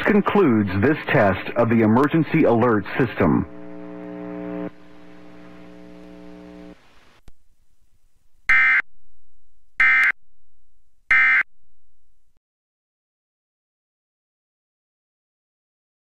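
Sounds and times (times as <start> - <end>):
faint steady hum: 0.0 - 8.5
buzzy digital data bursts: 2.3 - 7.2.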